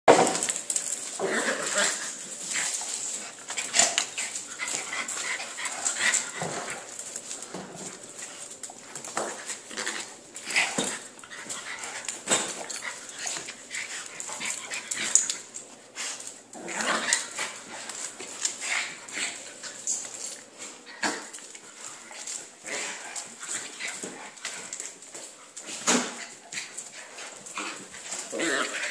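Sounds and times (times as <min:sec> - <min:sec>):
dogs growling and snarling: 0:00.2 - 0:19.9, 0:20.7 - 0:24.8, 0:25.7 - 0:28.9.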